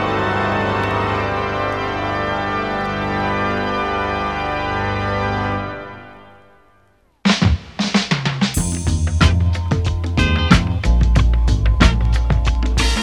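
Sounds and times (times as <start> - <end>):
sustained organ chord: 0.0 - 6.9.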